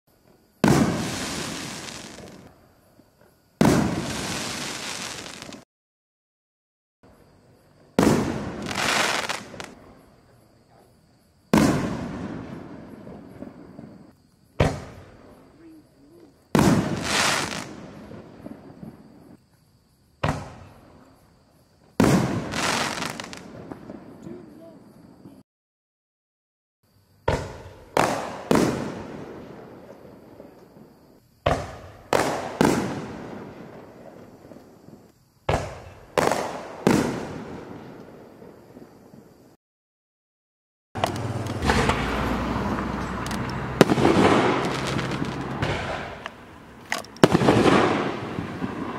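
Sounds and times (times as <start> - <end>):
firework bangs with echo: 0.6 - 2.5, 3.6 - 5.6, 8.0 - 9.8, 11.5 - 15.4, 16.5 - 19.4, 20.2 - 20.8, 22.0 - 24.2, 27.2 - 30.5, 31.4 - 34.6, 35.4 - 38.8, 41.6 - 42.9, 43.6 - 48.9
firework shell bangs: 41.0 - 46.3.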